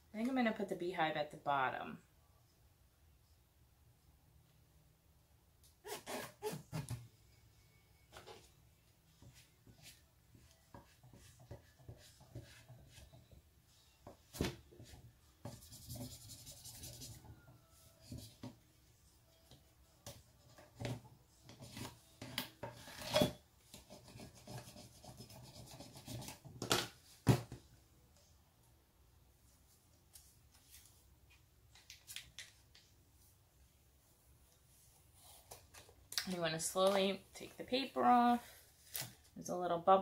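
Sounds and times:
squeegee rubbing vinyl on tumbler: 9.2 - 13.4, 14.8 - 18.6, 23.7 - 26.5.

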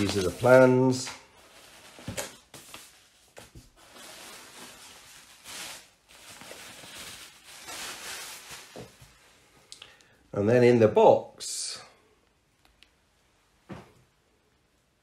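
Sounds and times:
paper sheets rustling: 0.0 - 9.2.

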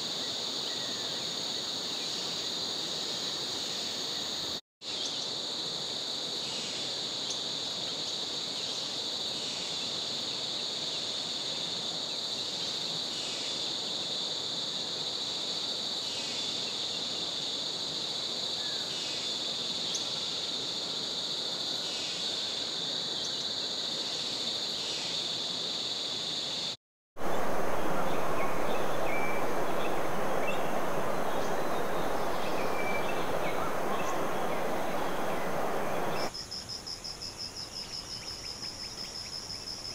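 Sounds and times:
insect chorus drone: 0.0 - 39.9
short repeating insect call: 18.5 - 39.9
loud rushing noise: 27.2 - 36.3.

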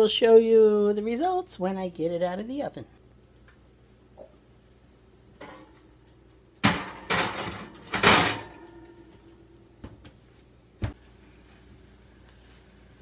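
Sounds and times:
metal oven rack clattering: 6.6 - 9.0.

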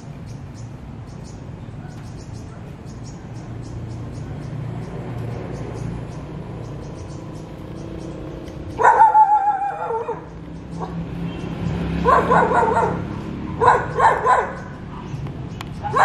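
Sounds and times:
dog barking and yelping: 8.8 - 11.0, 12.0 - 15.1, 15.8 - 16.0.

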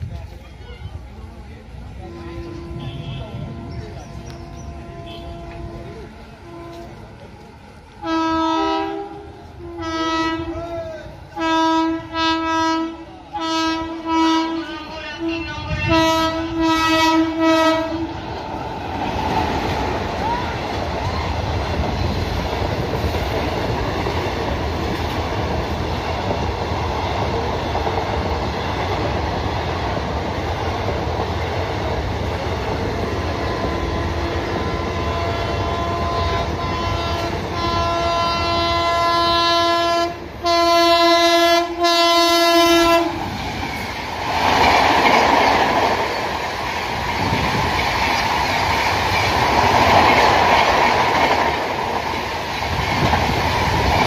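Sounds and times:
rush of passing train: 0.0 - 54.0
train coaches rumbling and clattering: 0.0 - 54.0
locomotive horn blasts: 2.0 - 7.1, 8.0 - 10.6, 11.3 - 18.2, 33.4 - 43.2.

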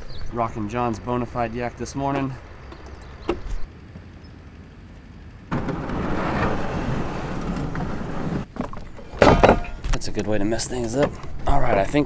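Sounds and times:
plastic hull scraping over gravel: 5.5 - 9.0.

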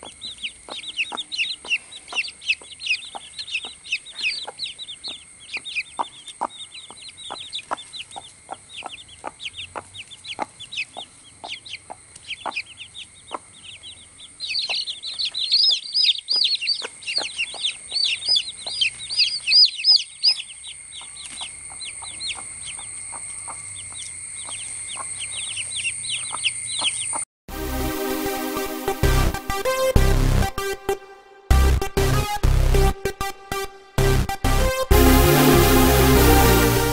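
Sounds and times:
chicks peeping: 0.0 - 27.2
hen clucking softly: 0.7 - 13.5
electronic music: 27.5 - 36.9.

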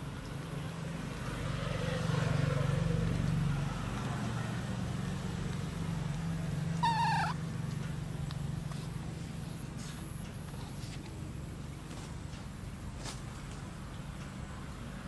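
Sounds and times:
engine humming: 0.0 - 15.0
wavering animal call: 6.8 - 7.4.

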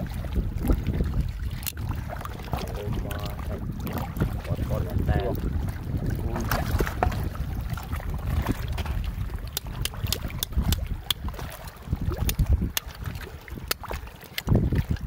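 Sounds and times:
shallow water sloshing: 0.0 - 15.0
wind rumbling on microphone: 0.0 - 15.0.

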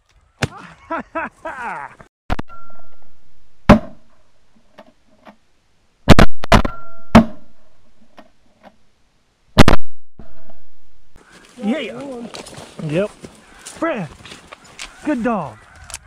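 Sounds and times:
shotgun shots: 6.1 - 7.5, 9.6 - 10.5.

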